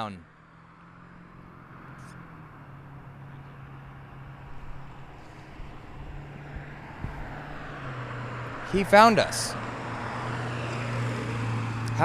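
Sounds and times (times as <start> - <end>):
road noise: 0.0 - 12.0
vehicle engine hum: 0.0 - 12.0.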